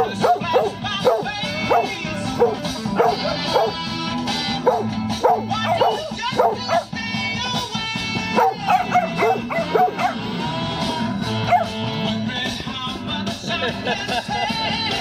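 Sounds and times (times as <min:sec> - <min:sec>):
dogs yipping and whining: 0:00.0 - 0:07.0, 0:08.3 - 0:10.4, 0:11.4 - 0:11.8
loud music: 0:00.0 - 0:15.0.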